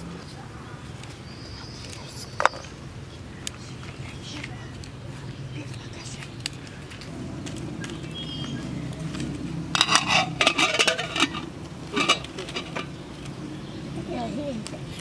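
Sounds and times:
metal pot and lid clattering: 9.7s - 13.0s.

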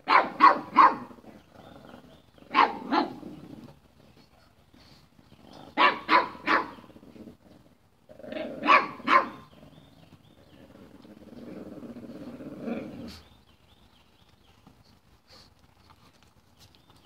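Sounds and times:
dogs barking: 0.0s - 1.2s, 2.5s - 3.3s, 5.7s - 6.9s, 8.4s - 9.6s
dog low growl: 1.1s - 4.2s, 6.7s - 8.7s, 9.5s - 13.4s.

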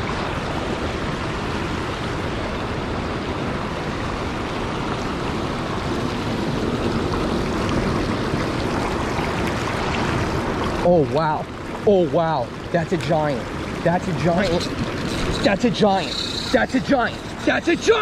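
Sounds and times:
water rushing over rocks: 0.0s - 18.0s.

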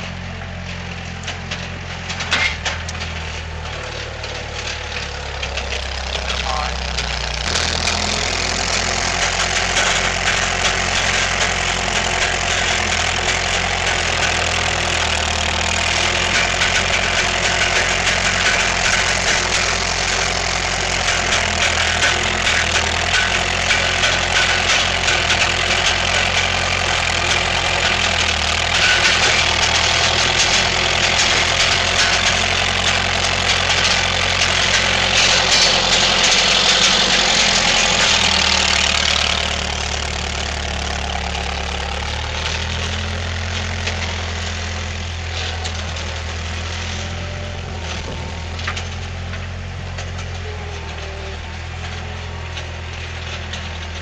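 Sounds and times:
skid steer engine running: 0.0s - 54.0s.

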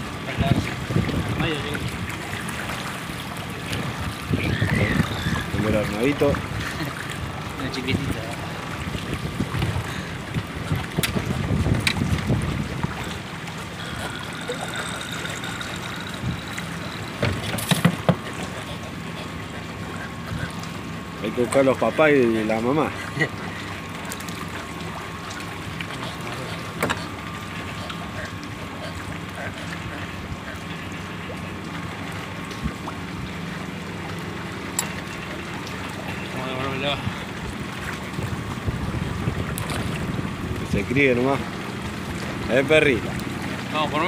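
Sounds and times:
low engine drone: 0.0s - 44.0s
river water: 0.0s - 44.0s
steady low hum: 0.0s - 44.0s
wind: 0.0s - 44.0s
wind noise: 8.8s - 13.0s, 38.2s - 40.9s
clicks and knocks in boat: 9.1s - 13.2s, 13.9s - 18.7s, 25.3s - 29.9s.

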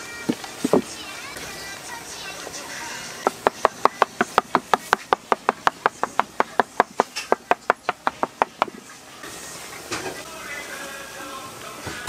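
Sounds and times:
hard tool knocking on work surface: 3.3s - 8.8s.

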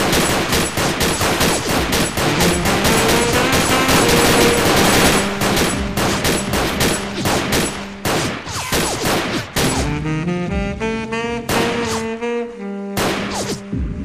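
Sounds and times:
automatic gunfire: 0.0s - 9.9s.

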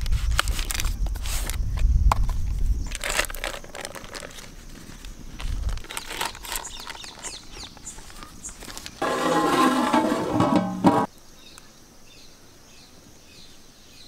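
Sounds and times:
paper crinkling: 0.0s - 1.6s, 2.9s - 9.0s
birds chirping: 5.9s - 9.0s.

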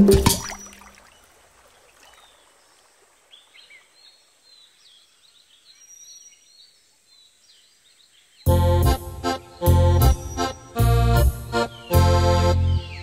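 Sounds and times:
faint birds chirping: 0.0s - 13.0s.

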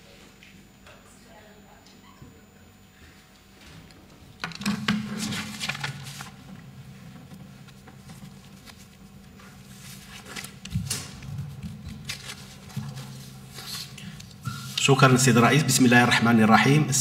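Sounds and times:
paper rustling: 4.9s - 14.8s.

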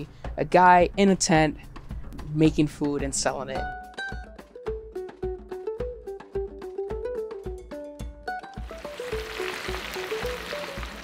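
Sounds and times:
food sizzling in deep fryer: 8.6s - 11.0s.

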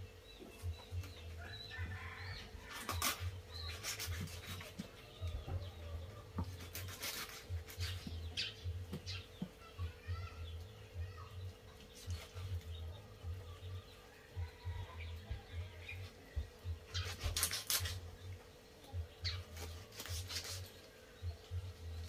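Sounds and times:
birds chirping: 0.0s - 22.0s
knife cutting on wooden block: 2.7s - 4.9s, 6.4s - 8.2s, 17.0s - 18.0s, 19.6s - 20.8s.

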